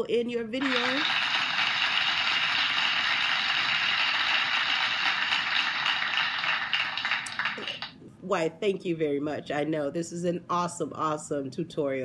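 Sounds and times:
crowd clapping: 0:00.6 - 0:08.0.

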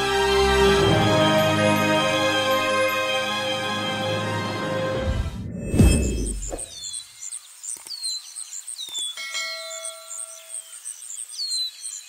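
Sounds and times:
birds chirping: 0:05.4 - 0:12.0
bell-like chime: 0:09.2 - 0:10.6.

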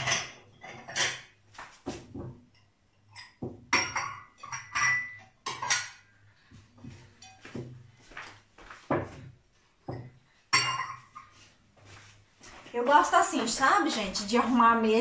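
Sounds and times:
crockery clinking on table: 0:02.5 - 0:06.1, 0:07.2 - 0:07.7, 0:09.9 - 0:11.3.

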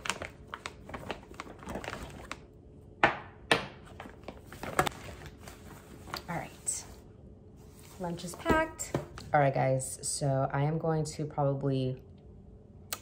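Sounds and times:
wrappers rustling: 0:00.0 - 0:02.4.

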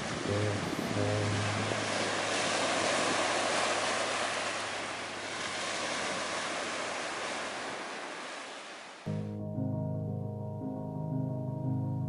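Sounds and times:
small waves washing on sand: 0:00.0 - 0:09.1.

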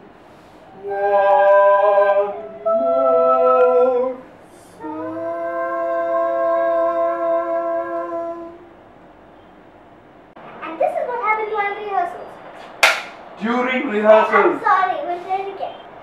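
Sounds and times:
girl and man singing wordlessly: 0:00.8 - 0:08.7.

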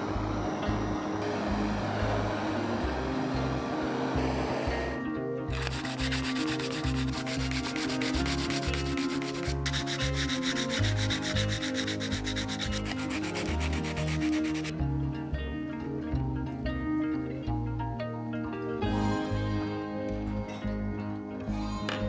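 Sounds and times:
sandpaper rubbing on wood: 0:05.5 - 0:14.7.

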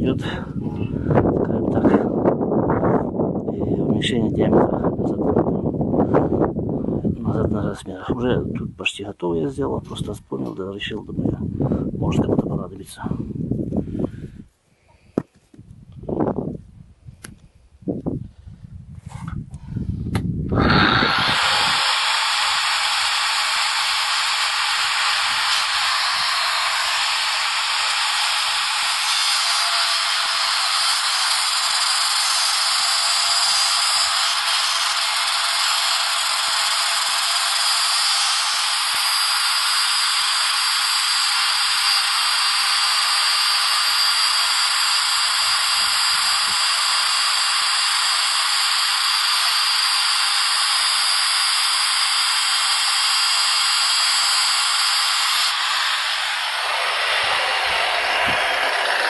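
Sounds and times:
angle grinder grinding metal: 0:20.5 - 0:59.0.

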